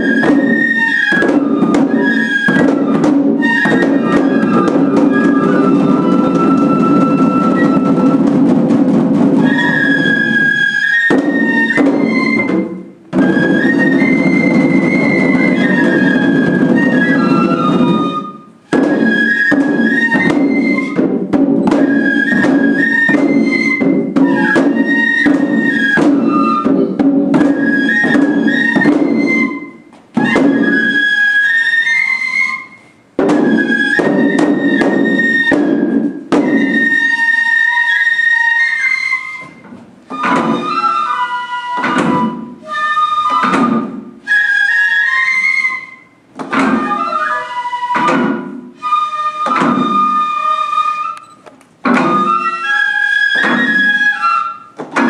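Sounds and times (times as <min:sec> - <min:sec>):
fast drumming: 0:00.0 - 0:10.2
high bamboo flute melody: 0:00.0 - 0:55.0.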